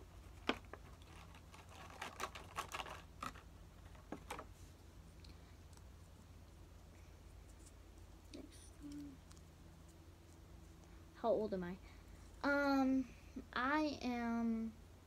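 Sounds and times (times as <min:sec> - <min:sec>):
paper rustling: 0:00.2 - 0:04.6.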